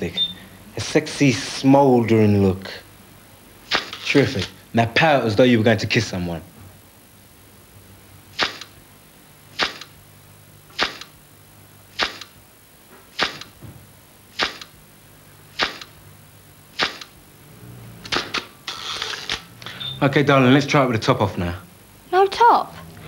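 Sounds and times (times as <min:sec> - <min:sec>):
camera shutter clicks: 0:08.4 - 0:08.8, 0:09.6 - 0:10.0, 0:10.8 - 0:11.2, 0:12.0 - 0:12.4, 0:13.2 - 0:13.6, 0:14.4 - 0:14.8, 0:15.6 - 0:16.0, 0:16.8 - 0:17.2.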